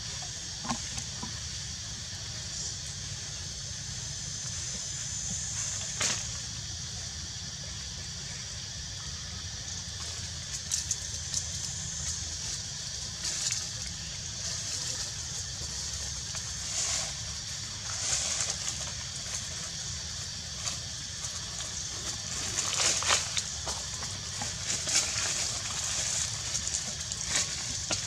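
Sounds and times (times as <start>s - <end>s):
high hiss: 0.0s - 28.0s
crackling leaf rustles: 10.0s - 28.0s.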